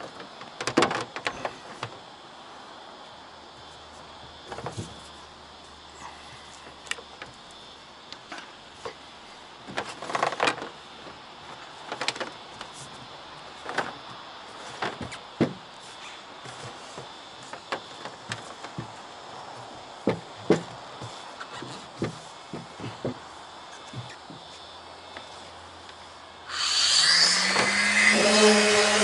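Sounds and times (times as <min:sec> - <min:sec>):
knocks and thumps on bus roof: 0:00.5 - 0:02.0, 0:14.7 - 0:15.6, 0:16.5 - 0:23.2.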